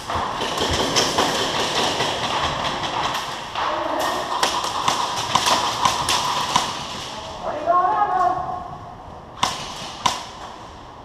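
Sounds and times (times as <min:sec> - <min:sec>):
pellets striking surfaces: 0:00.0 - 0:07.2
airsoft guns firing: 0:00.0 - 0:07.3, 0:09.4 - 0:10.5.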